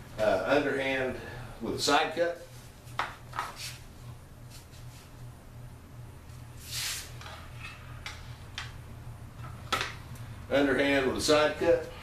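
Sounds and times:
steady low hum: 0.0 - 12.0
sword sliding into scabbard: 6.6 - 7.2.

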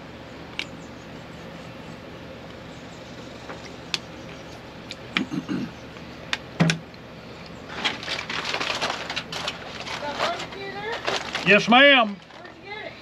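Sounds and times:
aluminium foil crinkling: 7.7 - 13.0.

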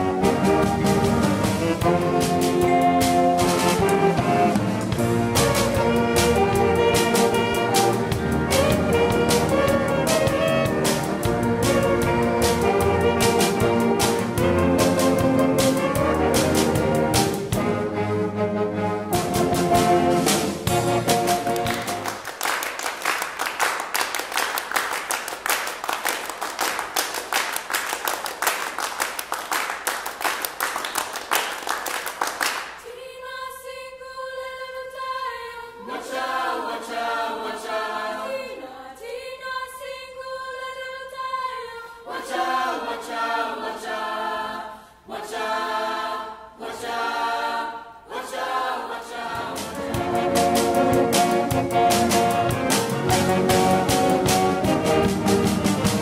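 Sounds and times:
choir singing a cappella: 0.0 - 22.0, 32.8 - 56.0
audience applauding: 21.4 - 32.8.

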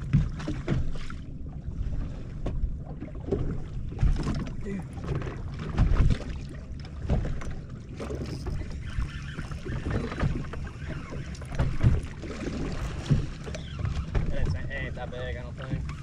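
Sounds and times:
waves slapping boat hull: 0.0 - 16.0
heavy thumps on hull: 2.4 - 6.4, 11.5 - 14.9.

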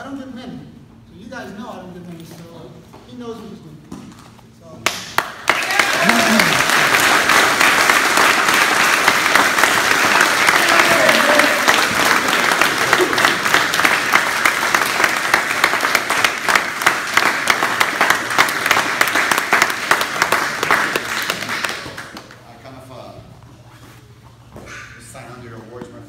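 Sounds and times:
people clapping: 4.8 - 22.6.

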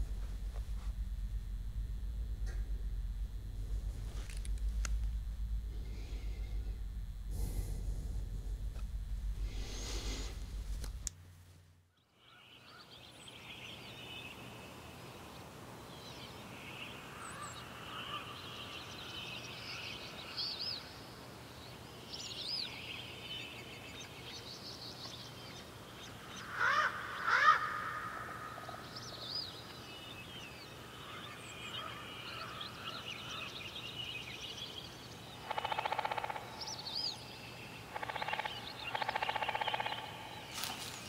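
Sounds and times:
faint low hum: 0.0 - 12.0, 28.4 - 41.0
loud bird calls: 26.0 - 41.0
small birds chirping and trilling: 28.4 - 41.0.

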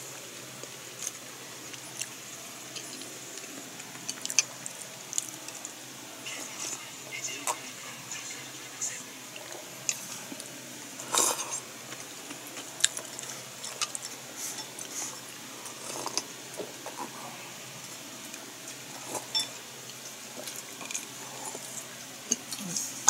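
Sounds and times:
chewing: 0.6 - 6.8, 9.3 - 17.5, 18.3 - 23.0
tableware clicks and knocks: 19.2 - 19.6.

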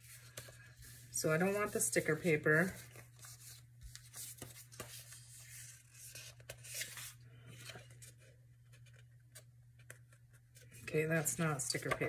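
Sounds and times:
paper rustling and sliding: 0.0 - 8.2.

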